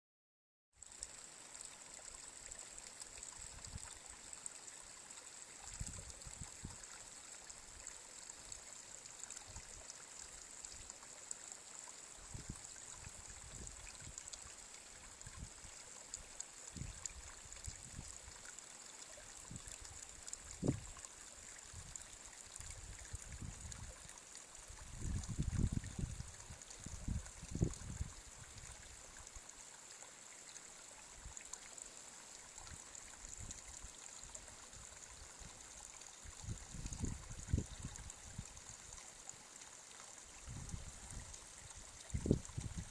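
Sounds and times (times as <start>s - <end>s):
brook trickling over stones: 0.7s - 42.9s
wind buffeting the microphone: 20.6s - 20.9s, 23.0s - 23.9s, 24.8s - 28.2s, 36.4s - 38.5s, 40.5s - 41.3s, 42.1s - 42.9s.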